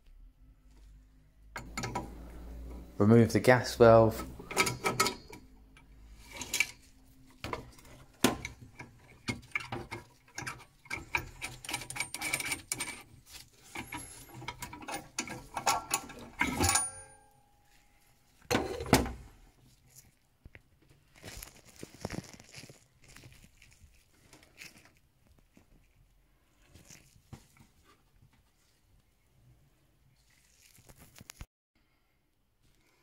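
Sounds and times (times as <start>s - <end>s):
spanner clicking and scraping on metal: 1.6s - 2.3s, 4.2s - 6.8s, 8.2s - 17.2s.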